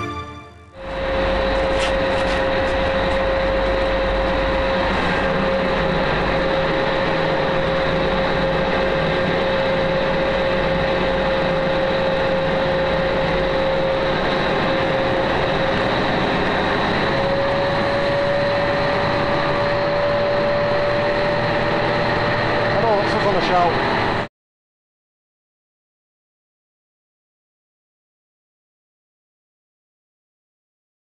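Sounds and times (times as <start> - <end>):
boat engines droning: 0.0 - 24.3
steady whine: 0.0 - 24.3.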